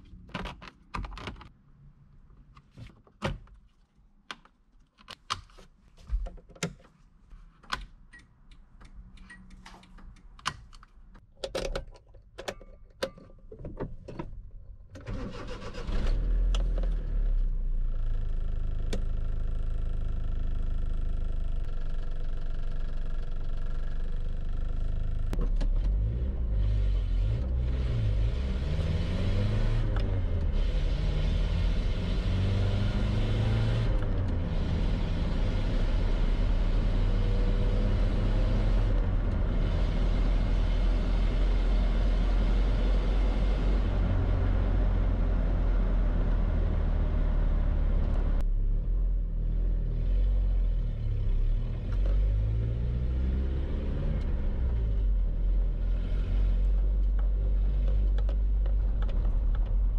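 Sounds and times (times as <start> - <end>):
engine accelerating through gears: 25.9 - 59.8.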